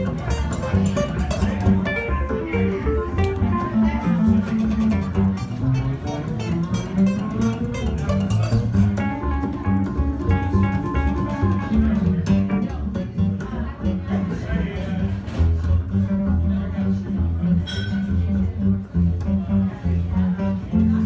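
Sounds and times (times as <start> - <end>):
acoustic guitar picking: 0.0 - 14.2
stage piano: 0.0 - 14.4
upright bass walking line: 0.0 - 21.0.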